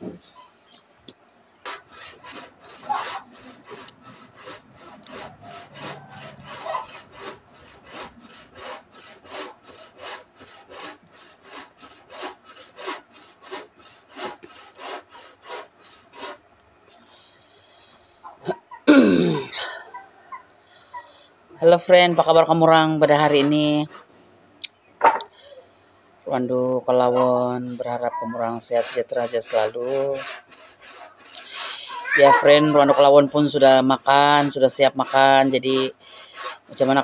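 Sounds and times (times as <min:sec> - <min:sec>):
hand saw cutting wood: 0:01.6 - 0:16.4, 0:21.6 - 0:24.1, 0:26.4 - 0:37.0
person coughing: 0:18.4 - 0:19.9.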